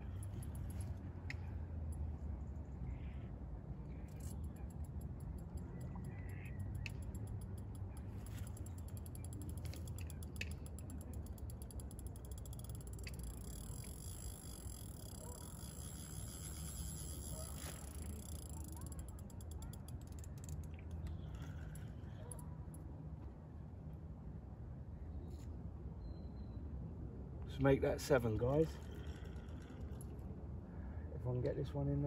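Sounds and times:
fishing reel ratcheting clicks: 0.0s - 1.0s, 4.1s - 22.5s, 28.2s - 30.3s.

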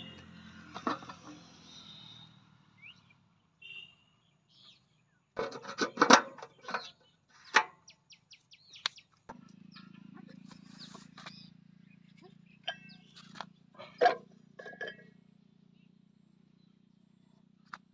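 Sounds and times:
birds chirping: 0.0s - 17.3s
fuel cap knocking and screwing: 0.7s - 1.4s, 5.4s - 6.9s, 7.5s - 7.8s, 12.2s - 15.2s.

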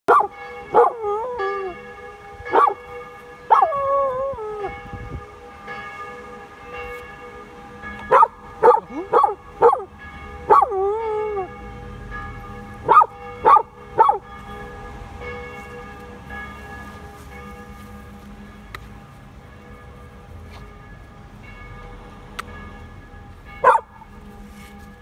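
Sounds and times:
puppy howling: 0.1s - 1.8s, 3.5s - 4.7s
church bells ringing: 0.1s - 25.0s.

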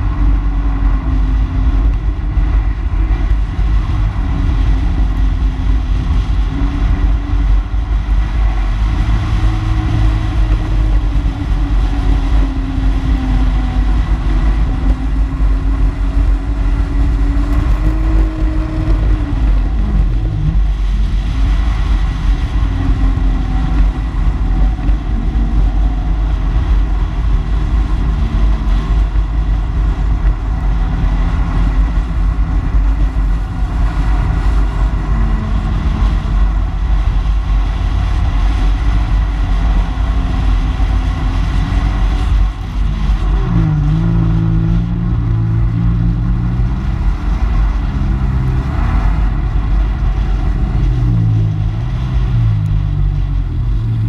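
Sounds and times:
wind rush on microphone: 0.0s - 54.0s.

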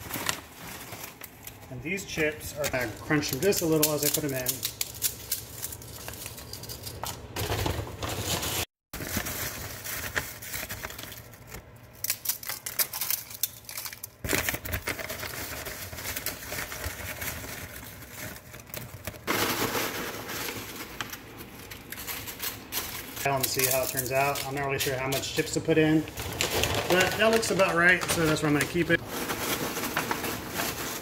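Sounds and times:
paper bag rustling: 0.0s - 4.5s, 13.7s - 31.0s.

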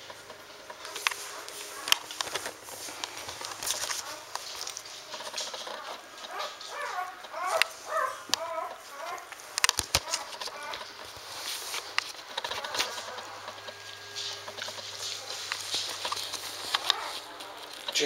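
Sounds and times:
puppy squeaks and grunts: 5.1s - 10.9s, 16.7s - 17.6s.

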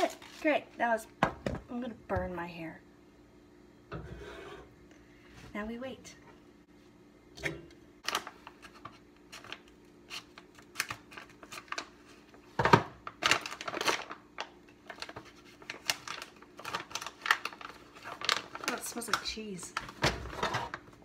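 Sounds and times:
plastic bag crinkling: 13.0s - 20.8s.

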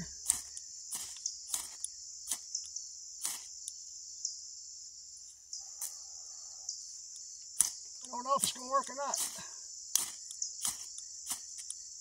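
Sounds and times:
high-pitched insect drone: 0.0s - 12.0s
ferro rod scraped by striker: 0.2s - 3.8s, 7.5s - 11.8s.

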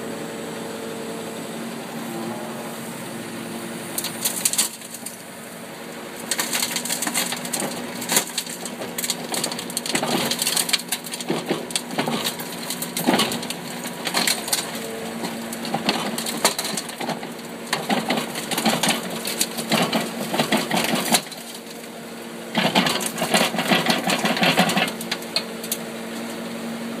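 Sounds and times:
excavator engine humming: 0.0s - 27.0s
rubble clattering and scraping: 6.2s - 21.9s, 22.5s - 25.2s.

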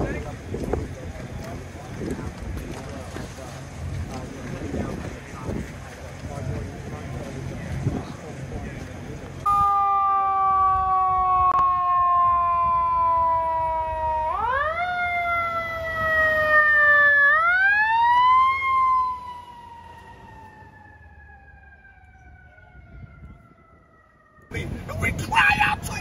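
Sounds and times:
fire engine siren: 9.4s - 25.7s.

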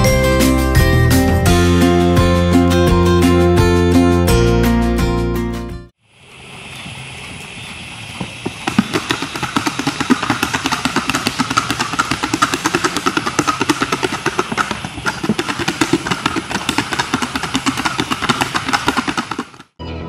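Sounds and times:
horse hooves on gravelly track: 6.6s - 19.8s.

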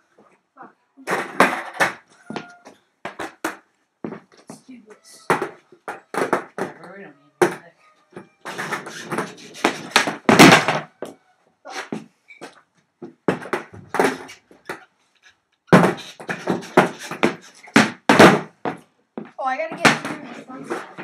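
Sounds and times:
skateboard clattering on plywood: 1.0s - 4.6s, 5.2s - 7.6s, 8.4s - 11.2s, 13.0s - 14.9s, 15.7s - 21.0s.

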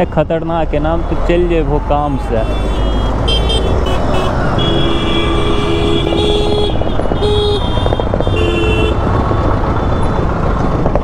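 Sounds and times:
road traffic: 0.0s - 11.0s
vehicle horns honking: 2.4s - 9.1s.

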